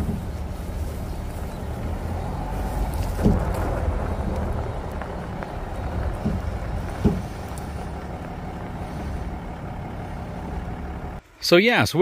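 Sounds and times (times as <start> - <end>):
truck rolling low rumble: 0.0 - 11.2
rear suspension knocks: 1.5 - 10.9.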